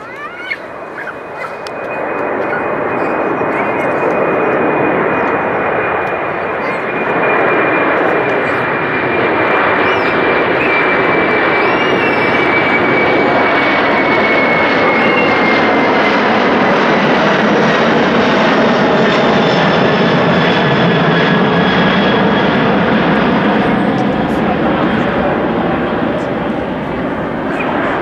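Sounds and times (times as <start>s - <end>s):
high jet engine whine: 0.0s - 28.0s
jet airliner engine noise: 0.0s - 28.0s.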